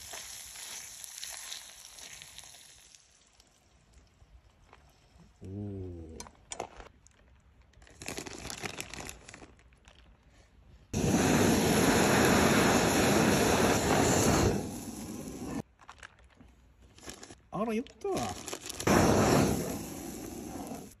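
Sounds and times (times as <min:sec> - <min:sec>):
cooking torch blasting: 0:11.0 - 0:15.6, 0:18.8 - 0:21.0
cheese rustling: 0:15.6 - 0:18.9.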